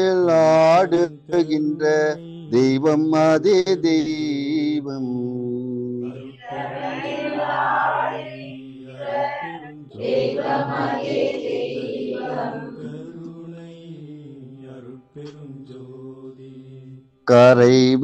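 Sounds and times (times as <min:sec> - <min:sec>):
voices chanting in unison: 0:06.0 - 0:17.0.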